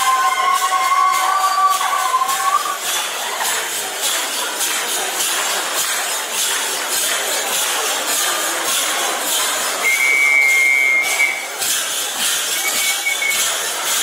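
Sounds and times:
rhythmic clattering and hissing: 0.1s - 14.0s
high whistle: 9.8s - 11.5s, 12.6s - 13.5s.

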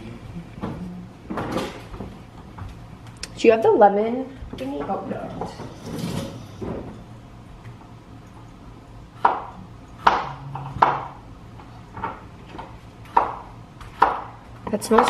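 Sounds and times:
knife chopping on cutting board: 9.2s - 11.2s, 12.0s - 15.0s.

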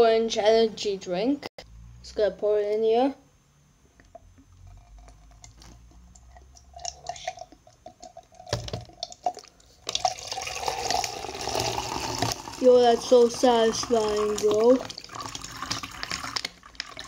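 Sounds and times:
drink pouring into cup: 4.1s - 17.0s.

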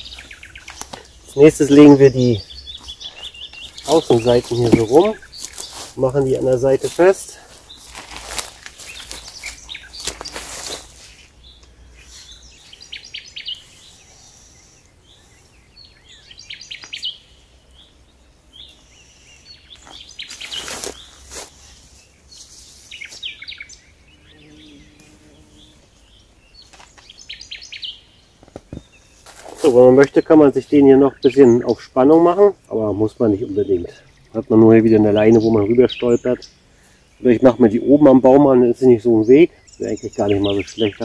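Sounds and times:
songbird chirping: 0.0s - 41.0s
tarp rustling and scuffing: 2.8s - 11.3s, 19.8s - 21.8s, 29.2s - 30.0s.

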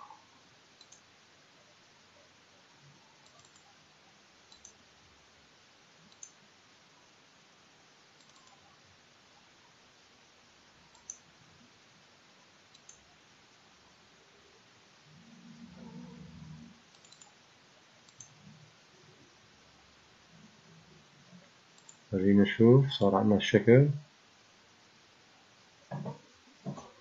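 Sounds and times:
low steady hiss: 0.0s - 27.0s
computer mouse clicks: 0.8s - 1.1s, 3.2s - 3.8s, 4.5s - 4.8s, 6.1s - 6.4s, 8.2s - 8.7s, 10.8s - 11.3s, 12.7s - 13.1s, 16.8s - 17.4s, 18.0s - 18.4s, 21.8s - 22.1s.

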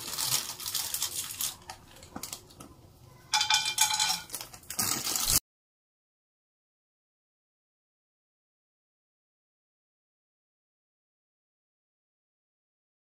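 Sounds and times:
plastic packet crinkling: 0.0s - 2.6s, 3.4s - 5.4s
peanuts clattering in a wok: 3.3s - 5.4s.

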